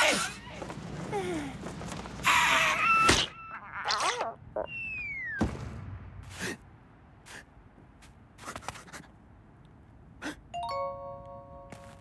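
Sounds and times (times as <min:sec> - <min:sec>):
descending cartoon whistle: 0:04.7 - 0:05.4.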